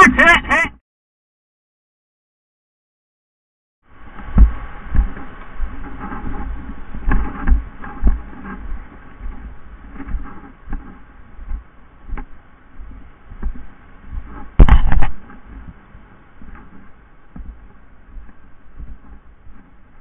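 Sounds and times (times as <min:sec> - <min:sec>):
thuds: 0:14.2 - 0:15.8
sharp knocks: 0:14.6 - 0:15.2.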